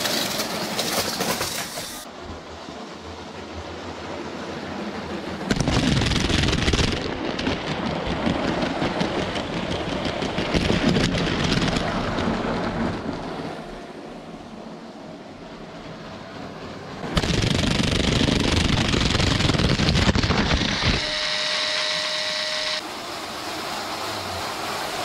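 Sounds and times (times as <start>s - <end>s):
toy trains clattering on track: 0.0s - 2.1s.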